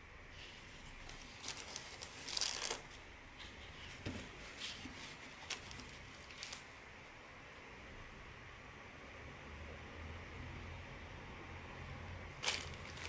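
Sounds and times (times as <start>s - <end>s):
stiff fabric rustling: 12.4s - 13.0s.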